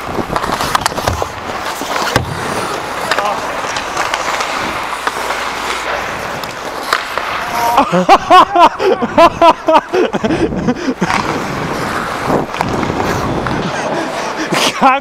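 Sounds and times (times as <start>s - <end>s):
skate blades scraping on ice: 0.0s - 8.4s, 9.4s - 15.0s
loud laughter: 7.6s - 11.1s.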